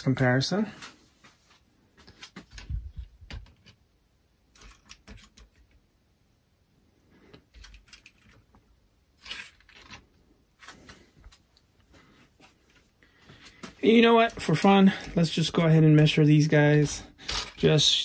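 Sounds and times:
plastic toys shuffling: 0:00.7 - 0:03.8, 0:07.3 - 0:08.6, 0:09.2 - 0:15.5, 0:16.8 - 0:18.0
plastic toys clicking and tapping: 0:04.5 - 0:05.8, 0:07.5 - 0:08.5, 0:17.2 - 0:17.8.

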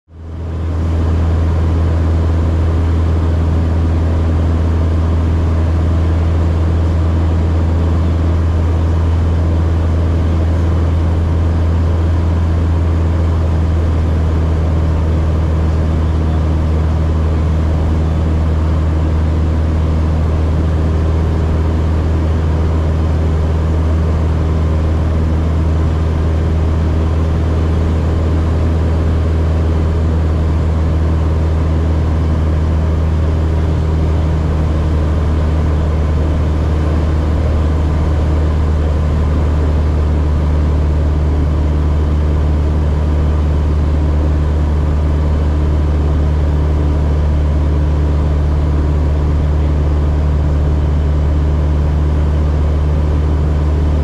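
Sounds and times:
airplane engine drone: 0:00.1 - 0:54.0.

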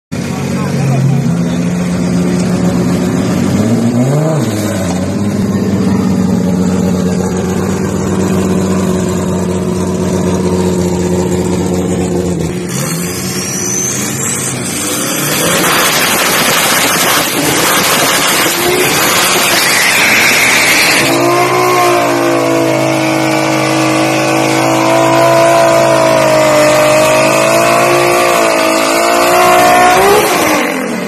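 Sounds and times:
drag car engine revving: 0:00.2 - 0:31.0
rough rushing noise: 0:01.3 - 0:24.8.

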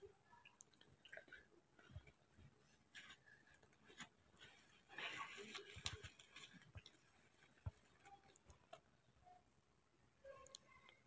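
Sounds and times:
faint rustle: 0:01.0 - 0:08.9.

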